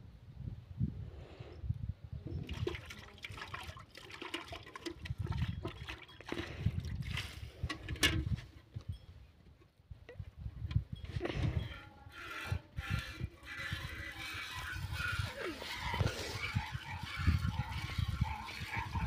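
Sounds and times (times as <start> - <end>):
milk squirting into metal bucket: 2.4 - 8.4, 11.2 - 19.0.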